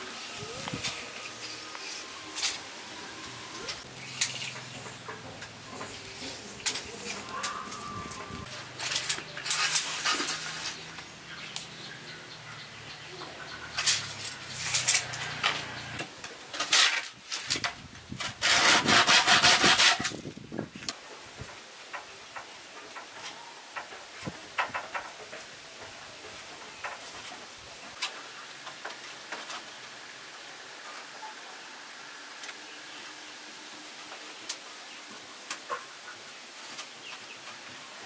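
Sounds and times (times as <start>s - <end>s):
scraping strokes on wood: 18.2s - 20.2s.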